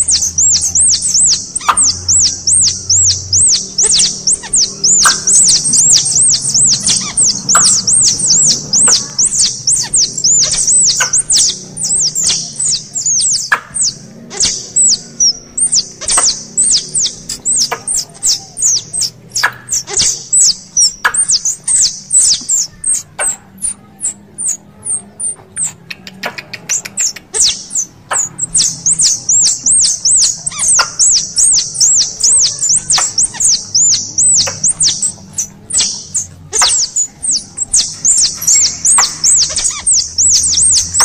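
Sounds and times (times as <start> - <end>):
squirrel chirping: 0.0 - 41.0
squirrel clicks: 15.6 - 41.0.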